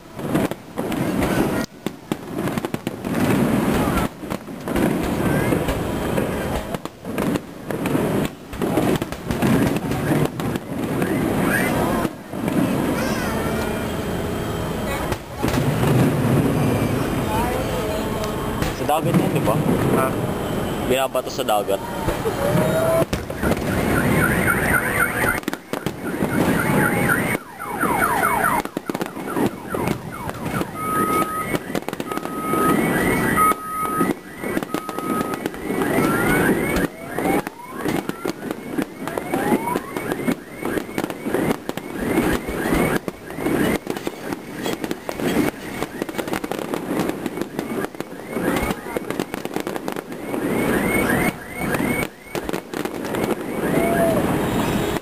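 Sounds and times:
whistling fireworks: 0.0s - 55.0s
firework shells bursting: 18.2s - 50.8s.

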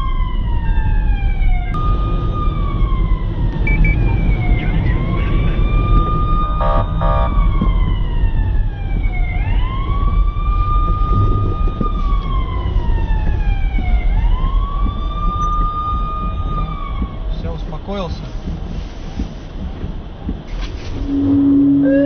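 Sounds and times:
siren wailing: 0.0s - 17.3s, 21.0s - 22.0s
low rumble: 0.0s - 22.0s
short beeps: 3.6s - 4.0s, 21.0s - 22.0s.

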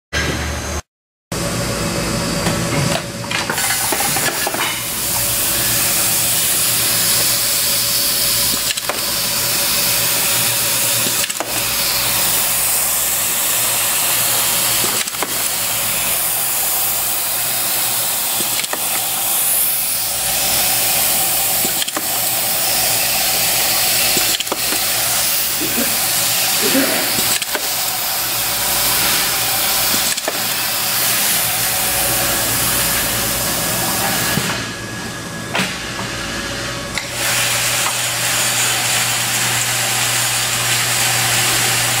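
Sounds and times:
compressed air hiss: 4.9s - 33.2s
pneumatic clip gun clicks: 8.4s - 9.2s, 10.0s - 12.8s, 14.6s - 20.0s, 20.6s - 25.6s, 26.3s - 28.3s, 28.9s - 30.6s.

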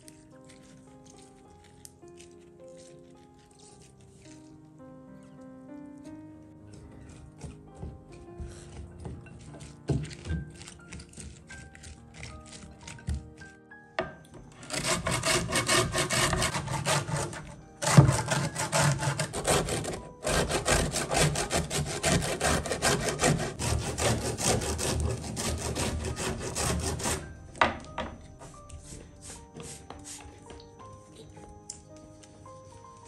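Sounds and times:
orange peel rasping on a grater: 0.0s - 4.5s, 6.7s - 13.5s, 14.6s - 27.3s.

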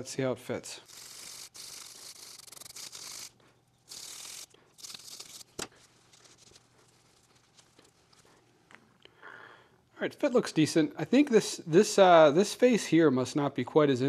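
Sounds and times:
wire brush scrubbing metal: 0.8s - 5.5s.

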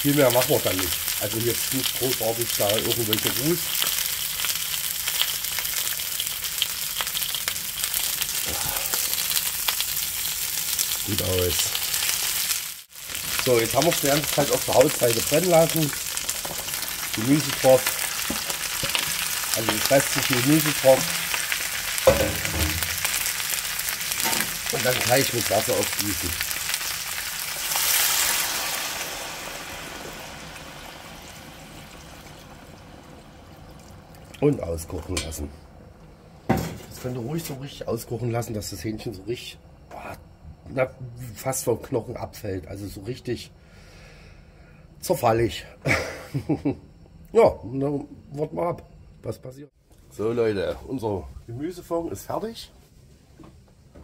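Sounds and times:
chicken sizzling and crackling: 0.0s - 34.1s.

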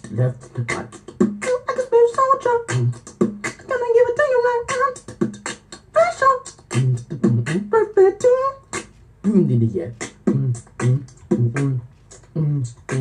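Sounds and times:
beatboxing: 0.0s - 13.0s
hummed vocal tones: 0.0s - 13.0s.

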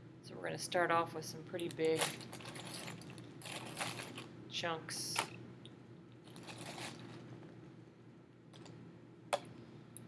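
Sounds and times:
ice crunching in plastic bag: 3.4s - 4.3s, 6.3s - 7.2s.

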